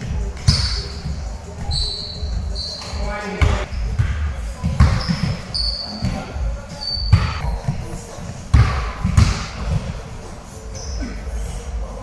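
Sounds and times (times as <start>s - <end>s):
sneakers squeaking: 0.0s - 12.0s
basketball bouncing on floor: 2.8s - 6.2s, 8.5s - 10.0s.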